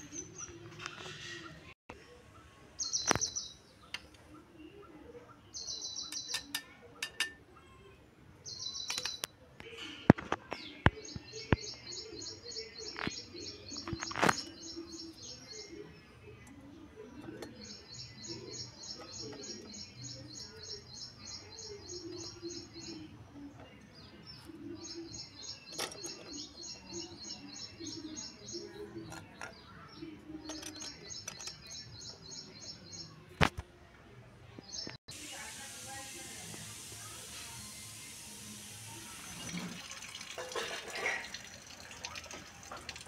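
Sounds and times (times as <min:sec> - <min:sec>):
small bird chirping: 0:05.5 - 0:09.4, 0:10.6 - 0:33.2.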